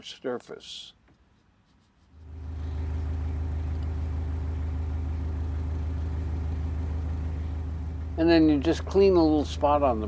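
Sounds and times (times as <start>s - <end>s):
boat engine idling: 2.2s - 10.0s.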